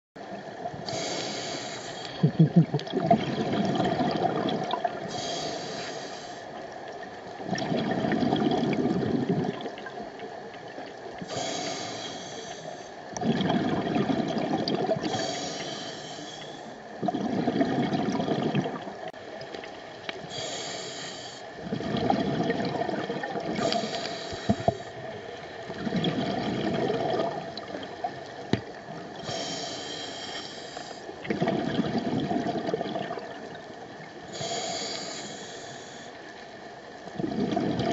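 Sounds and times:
exhaled bubbles underwater: 0.2s - 37.9s
regulator inhale hiss: 0.8s - 2.3s, 5.0s - 6.6s, 11.2s - 13.0s, 15.0s - 16.9s, 20.2s - 21.6s, 23.6s - 25.2s, 29.2s - 31.2s, 34.2s - 36.6s.

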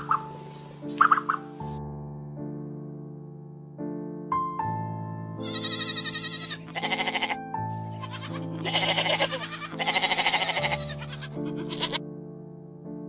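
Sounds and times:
background music with sustained tones: 0.0s - 13.0s
goats bleating: 5.4s - 12.0s.

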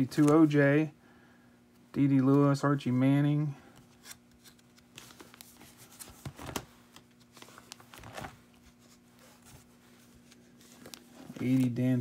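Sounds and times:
plastic pages rustling and crinkling: 0.0s - 0.6s, 3.9s - 12.0s.

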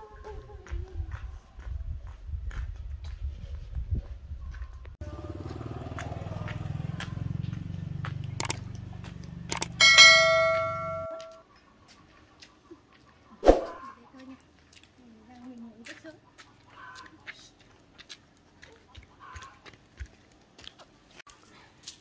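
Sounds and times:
metal object clanging: 9.6s - 11.4s.

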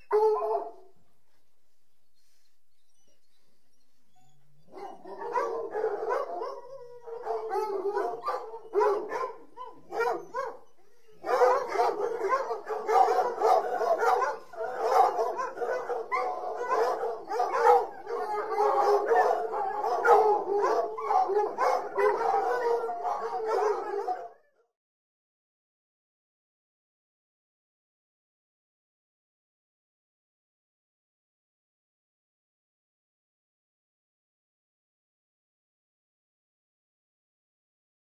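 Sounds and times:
dogs barking: 0.1s - 0.9s, 4.6s - 24.4s.

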